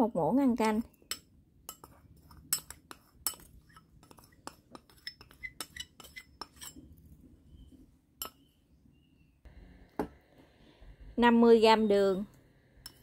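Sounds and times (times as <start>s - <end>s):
spoon clinking against bowl: 1.0s - 6.8s.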